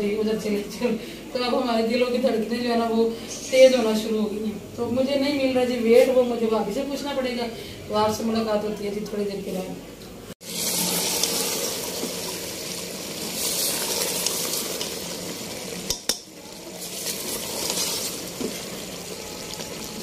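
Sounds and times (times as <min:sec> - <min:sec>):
food sizzling in gravy: 0:10.4 - 0:20.0
spoon tapping pot: 0:15.9 - 0:16.3.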